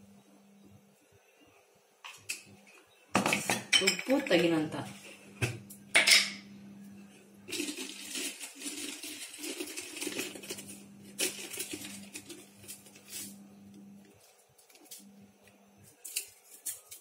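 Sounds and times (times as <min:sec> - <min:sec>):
steady low hum: 0:04.3 - 0:07.6, 0:09.5 - 0:16.8
crackly rustling handling sounds: 0:07.5 - 0:17.0.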